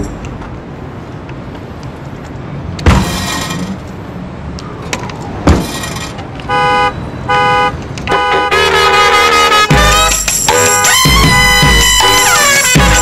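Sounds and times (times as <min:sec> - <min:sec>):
sharp thumps: 0:02.8 - 0:04.0, 0:04.9 - 0:06.4
car horn honking: 0:06.4 - 0:13.0.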